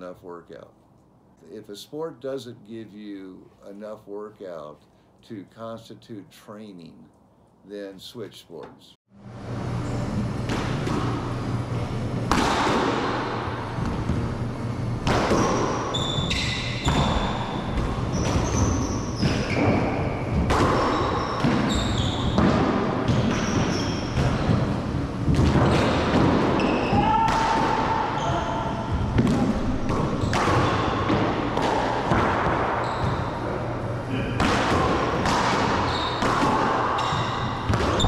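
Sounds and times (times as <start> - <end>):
sneakers squeaking on hardwood: 15.1 - 24.8, 25.4 - 27.3, 27.9 - 38.0.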